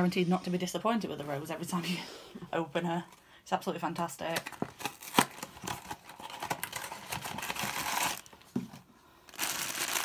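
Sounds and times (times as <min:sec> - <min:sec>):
foil bag crinkling: 0:04.8 - 0:08.3, 0:09.3 - 0:10.0.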